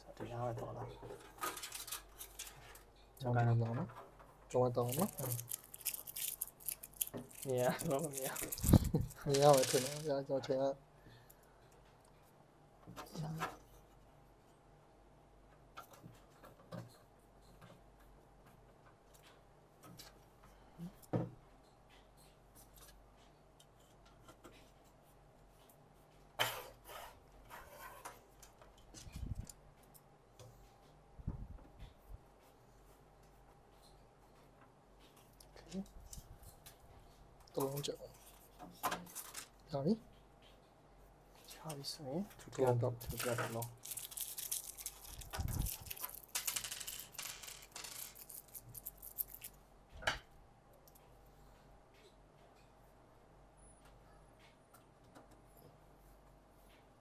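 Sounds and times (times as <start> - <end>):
small clicks and rubbing: 3.9 - 10.2, 41.4 - 49.6.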